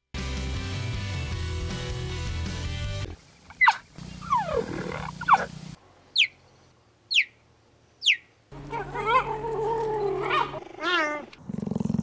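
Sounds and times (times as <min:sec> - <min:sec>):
cheetah chirping: 0:03.4 - 0:07.4, 0:08.0 - 0:08.3.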